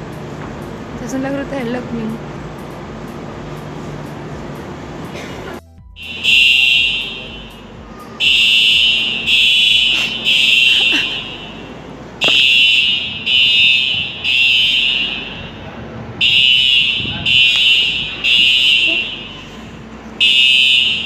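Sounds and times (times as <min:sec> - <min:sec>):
high-pitched alarm beeps: 0:06.0 - 0:15.6.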